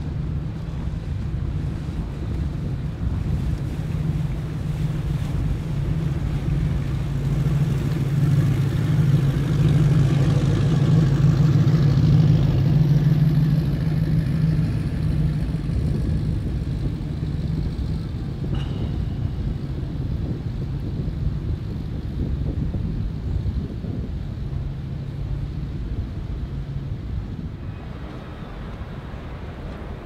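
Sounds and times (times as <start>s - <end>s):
boat engines rumbling: 0.0s - 30.0s.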